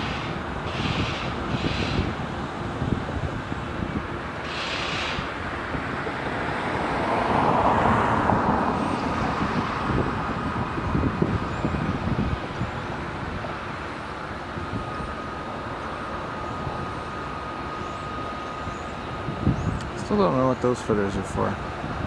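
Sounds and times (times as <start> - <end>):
motor vehicle rumble: 0.0 - 22.0
faint steady whine: 12.2 - 22.0.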